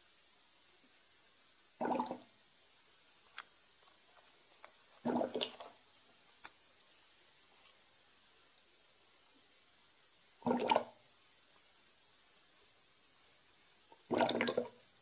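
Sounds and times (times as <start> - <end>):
airlock gurgling: 5.0 - 5.6, 14.0 - 14.7.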